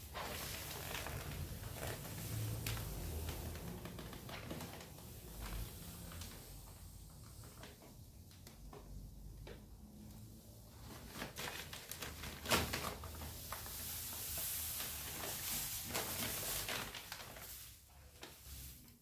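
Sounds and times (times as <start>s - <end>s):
plastic bag crinkling: 0.0s - 6.6s, 10.8s - 18.7s
sand pouring onto concrete: 13.1s - 18.8s.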